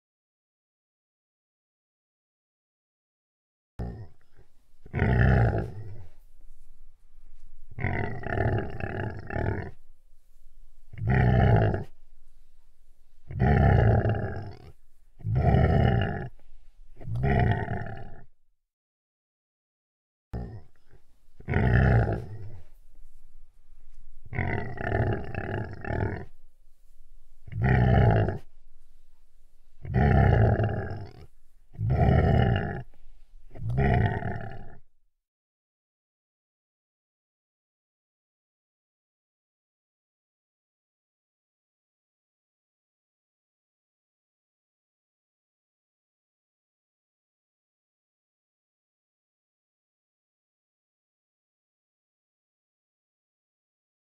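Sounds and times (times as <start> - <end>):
large animal deep calls: 3.8 - 6.2, 7.7 - 9.9, 10.8 - 12.4, 13.2 - 16.4, 17.0 - 18.3, 20.4 - 22.8, 24.2 - 26.5, 27.4 - 29.0, 29.7 - 34.9.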